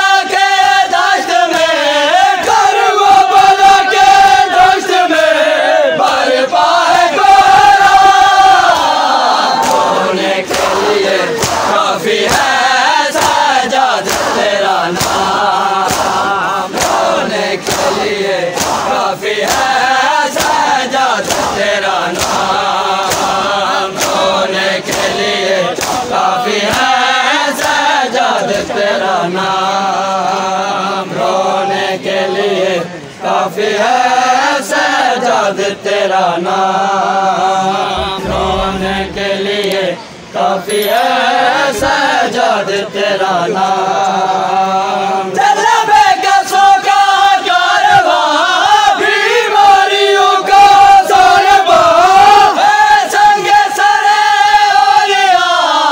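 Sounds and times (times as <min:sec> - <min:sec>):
men chanting in unison: 0:00.0 - 0:55.9
chest-beating slaps: 0:11.4 - 0:12.5, 0:14.0 - 0:19.7, 0:25.8 - 0:26.9.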